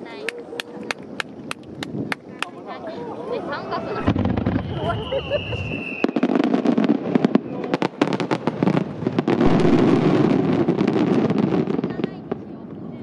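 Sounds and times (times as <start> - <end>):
fireworks bangs and crackle: 4.0 - 13.0.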